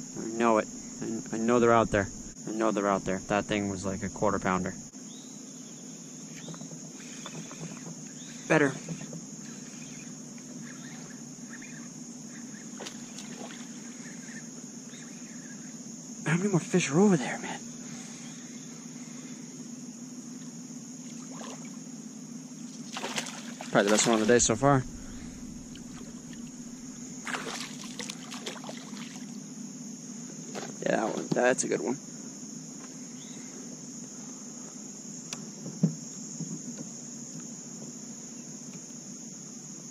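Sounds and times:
faint chirps: 0.0 - 29.6, 32.8 - 35.5
low background hum: 0.0 - 39.8
insects droning: 0.0 - 39.9
fish splashing at water surface: 22.9 - 29.3.

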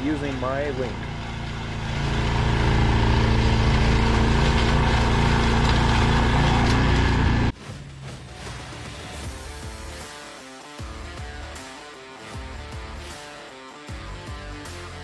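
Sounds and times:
snowblower engine running: 0.0 - 7.5.

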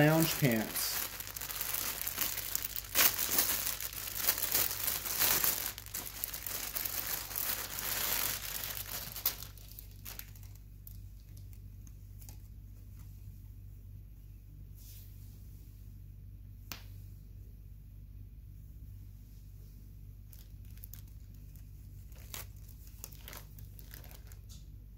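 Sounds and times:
plastic bag crinkling: 0.0 - 11.5, 20.3 - 24.5.

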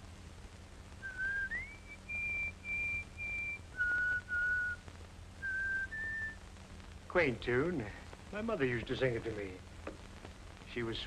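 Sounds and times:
man whistling a tune: 1.0 - 4.8, 5.4 - 6.4.

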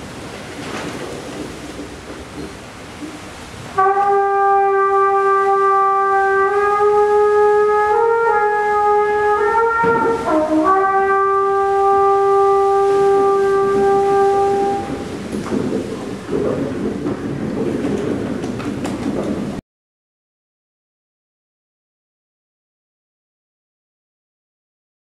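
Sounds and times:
trumpet playing long notes: 3.8 - 15.2.

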